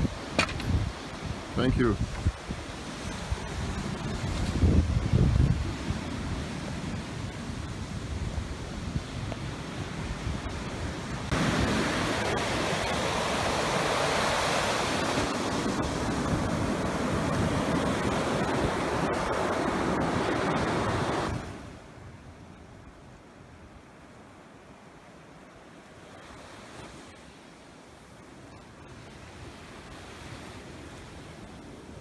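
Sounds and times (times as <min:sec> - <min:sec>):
wind rumble on microphone: 0:00.0 - 0:23.8
ocean surf breaking on beach: 0:00.0 - 0:32.0.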